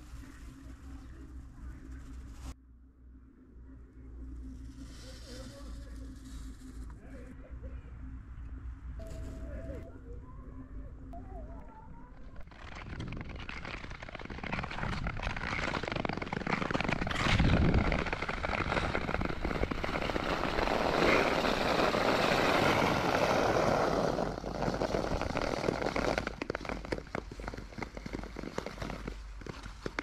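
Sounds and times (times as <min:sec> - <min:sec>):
crackling ticks on frosty ice: 0:12.3 - 0:30.0
skate blades scraping on ice: 0:12.5 - 0:30.0.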